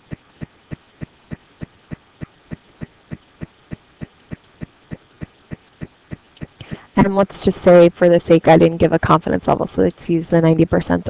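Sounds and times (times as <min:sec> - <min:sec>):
steady sharp ticking: 0:00.0 - 0:07.3.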